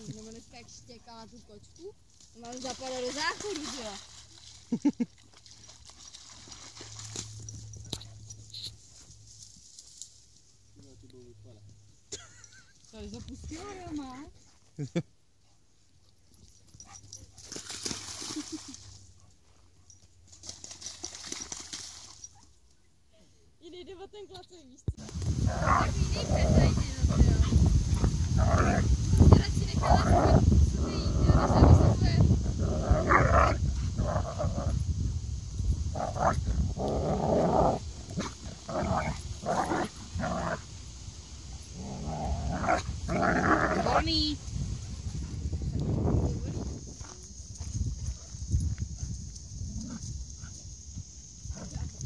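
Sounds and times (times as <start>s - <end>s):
dog splashing through water: 2.4s - 7.7s, 17.4s - 18.9s, 20.3s - 22.3s
dogs growling while playing: 25.0s - 34.9s, 35.8s - 40.7s, 41.7s - 44.1s.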